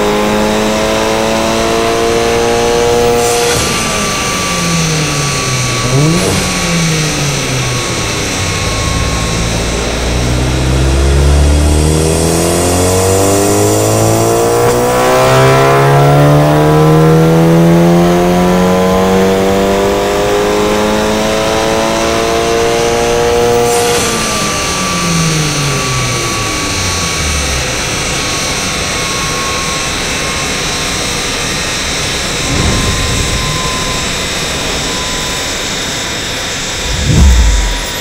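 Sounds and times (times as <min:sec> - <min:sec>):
car engine revving on dyno: 0:00.0 - 0:28.4, 0:36.7 - 0:38.0.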